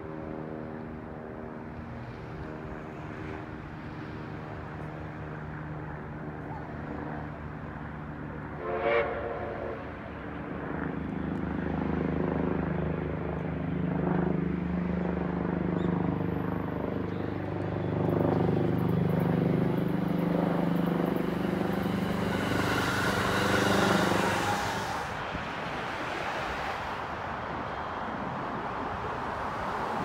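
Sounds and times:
train motors droning: 0:18.1 - 0:26.1
wheel-on-rail hiss: 0:21.3 - 0:25.3.

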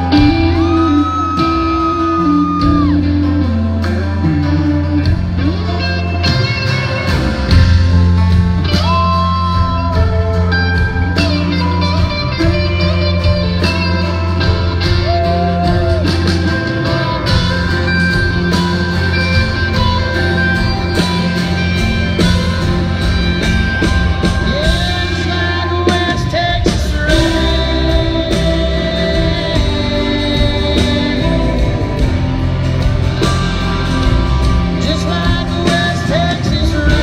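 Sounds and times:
bass and drums: 0:00.0 - 0:37.0
electric guitar bending notes: 0:00.0 - 0:37.0.

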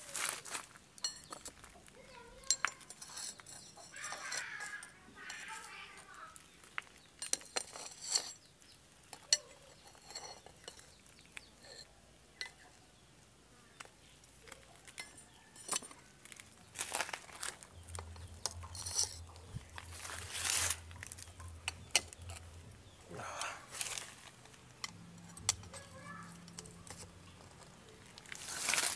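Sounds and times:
metal knives clinking: 0:01.0 - 0:01.6, 0:02.4 - 0:05.8, 0:07.2 - 0:08.5, 0:09.1 - 0:12.6, 0:14.4 - 0:22.5, 0:24.8 - 0:28.9.

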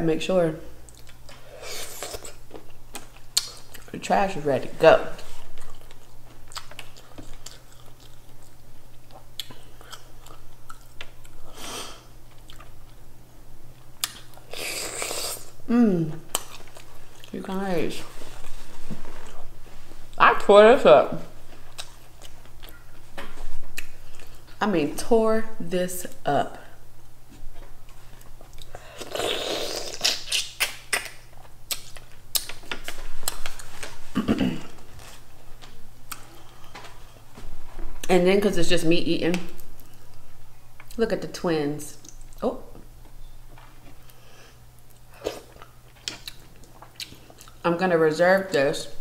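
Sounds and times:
wet chewing: 0:05.2 - 0:11.4, 0:21.5 - 0:23.0, 0:44.8 - 0:47.6
mouth chewing seafood: 0:05.2 - 0:13.0, 0:21.5 - 0:23.0, 0:27.3 - 0:35.2, 0:43.9 - 0:47.6.

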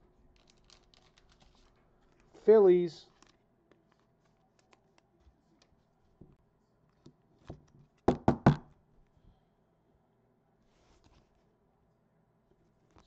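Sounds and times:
handling rustles and ticks: 0:00.3 - 0:07.1.

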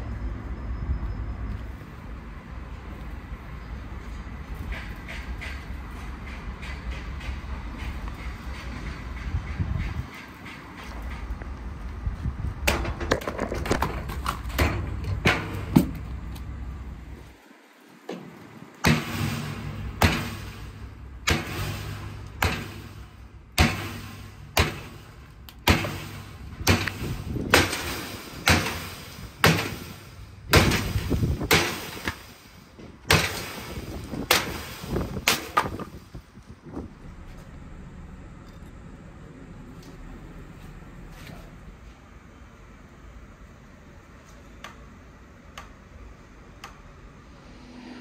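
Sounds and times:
sharp heavy strikes: 0:18.8 - 0:32.5.

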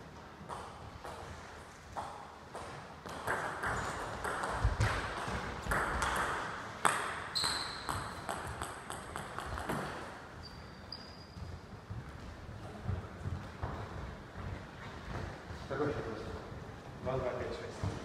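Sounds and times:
short high squeak: 0:07.3 - 0:07.9, 0:10.4 - 0:11.5.

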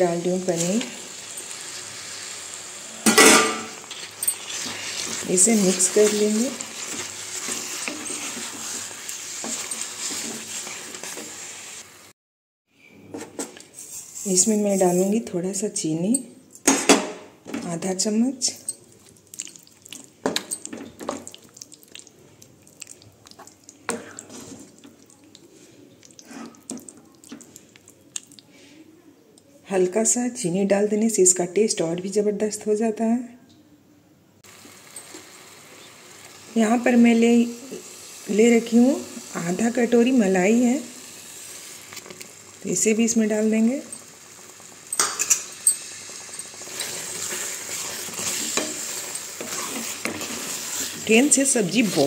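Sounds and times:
gravy sizzling in a pan: 0:00.0 - 0:12.2, 0:18.4 - 0:28.4, 0:34.4 - 0:52.0
wooden spatula scraping a pan: 0:03.6 - 0:12.0, 0:13.2 - 0:15.3, 0:23.4 - 0:25.0, 0:25.6 - 0:26.7, 0:46.5 - 0:52.0.

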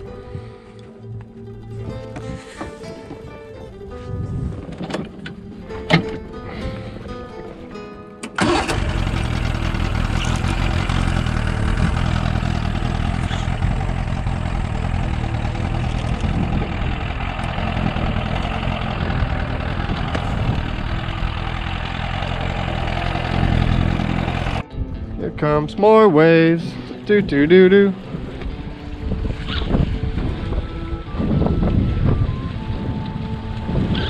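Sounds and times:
outboard motor starting and running: 0:08.2 - 0:24.6.

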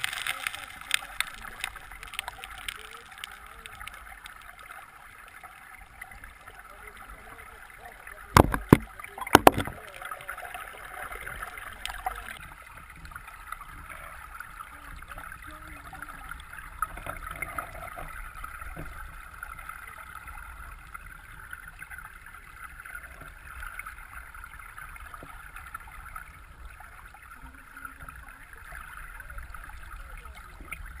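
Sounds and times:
faint ticks: 0:00.0 - 0:05.5, 0:11.6 - 0:12.4
underwater stream gurgling: 0:00.0 - 0:31.0
sharp knock: 0:08.4 - 0:09.7.

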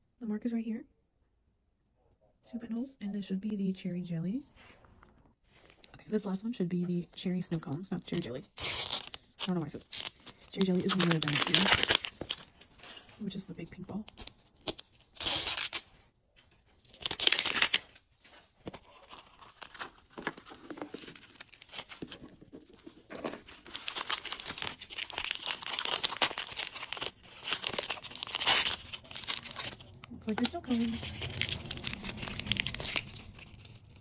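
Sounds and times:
plastic packets crinkling: 0:07.6 - 0:12.8, 0:16.6 - 0:34.0
wrapper tearing: 0:08.0 - 0:12.6, 0:14.0 - 0:16.0, 0:16.8 - 0:34.0.

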